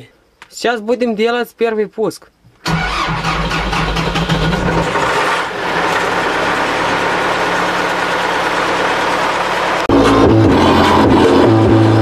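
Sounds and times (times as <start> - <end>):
tractor diesel engine starting: 2.6 - 12.0
tractor engine idling: 2.7 - 10.2.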